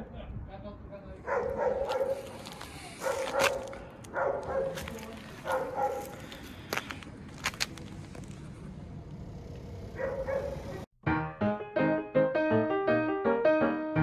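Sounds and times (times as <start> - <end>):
dog barking: 1.2 - 2.3, 3.0 - 6.2, 10.0 - 10.8.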